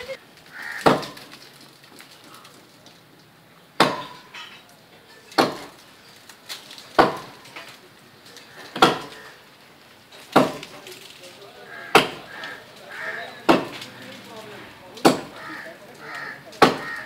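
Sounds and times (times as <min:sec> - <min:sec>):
blade chopping palm trunk: 0:00.7 - 0:01.4, 0:03.8 - 0:04.2, 0:05.3 - 0:05.8, 0:06.9 - 0:07.4, 0:08.7 - 0:09.2, 0:10.3 - 0:10.8, 0:11.8 - 0:12.5, 0:13.5 - 0:14.0, 0:14.9 - 0:17.0.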